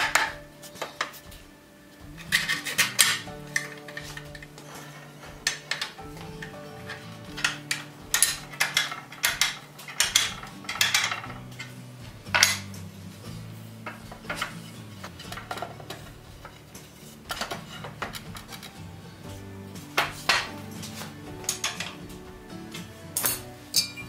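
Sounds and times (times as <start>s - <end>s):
iron parts clanking: 0.0s - 24.0s
soft background music: 0.0s - 24.0s.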